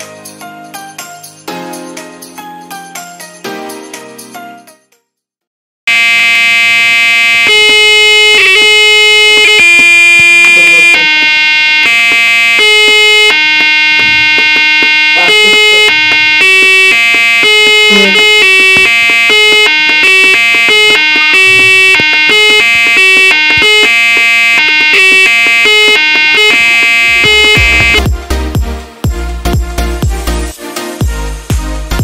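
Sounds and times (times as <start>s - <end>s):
electronic notes playing a tune: 6.8s - 28.1s.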